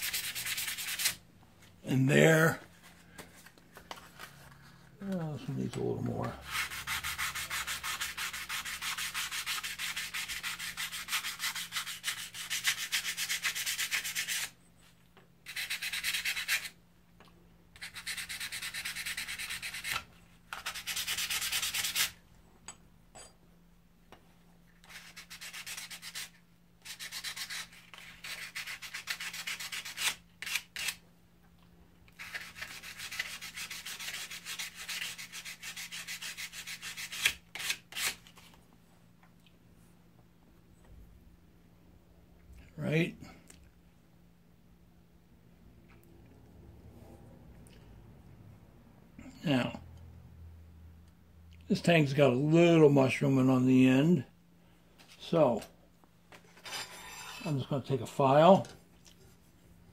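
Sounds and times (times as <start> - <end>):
metal rubbing on sandpaper: 0.0 - 1.2, 6.1 - 14.6, 15.5 - 16.8, 17.8 - 20.0, 24.9 - 31.0, 32.2 - 38.2.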